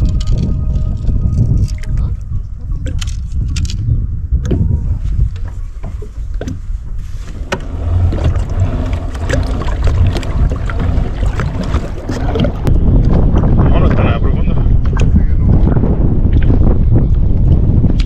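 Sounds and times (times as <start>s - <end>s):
wind buffeting microphone: 0.0s - 18.0s
water lapping against hull: 4.3s - 18.0s.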